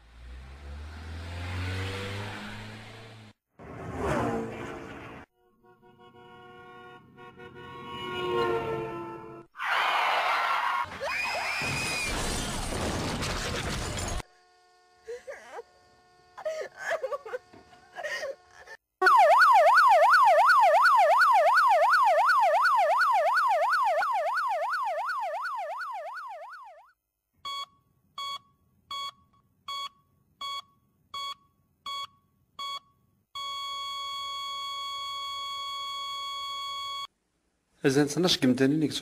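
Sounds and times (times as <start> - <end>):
electronic yelp siren: 19.0 - 27.0
short electronic beeps: 27.5 - 37.1.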